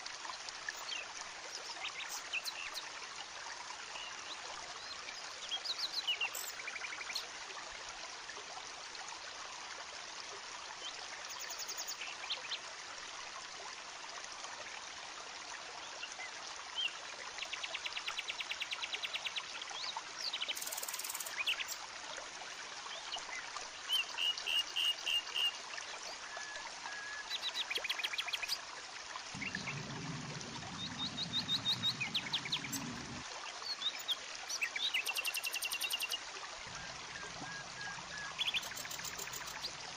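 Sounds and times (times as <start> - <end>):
stream trickling over rocks: 0.0 - 39.9
birds chirping and trilling: 29.4 - 39.8.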